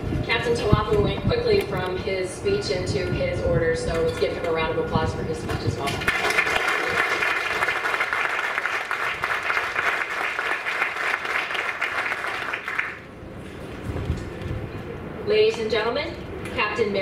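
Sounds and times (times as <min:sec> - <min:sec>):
audience applauding: 0:06.0 - 0:13.1.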